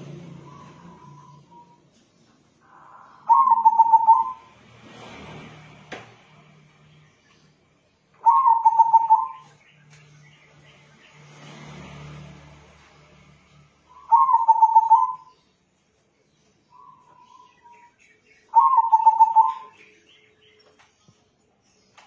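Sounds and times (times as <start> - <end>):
dove cooing: 2.6 - 4.5, 8.2 - 9.5, 14.0 - 15.3, 18.5 - 19.8.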